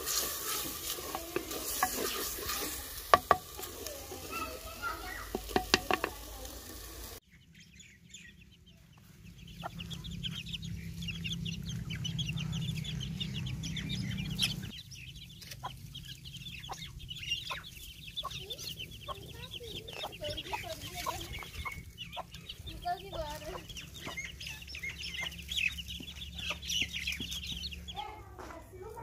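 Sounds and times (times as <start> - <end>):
chicks peeping: 0.0 - 6.6, 7.3 - 29.0
hens clucking: 15.4 - 28.2.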